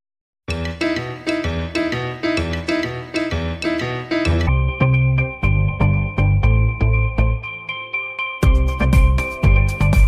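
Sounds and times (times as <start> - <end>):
background music with steady beat: 0.5 - 10.0.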